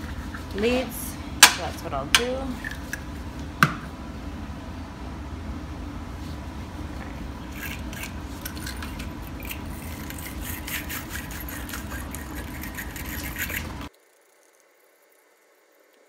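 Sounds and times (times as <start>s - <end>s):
wire brush scraping metal clamp: 7.6s - 13.9s.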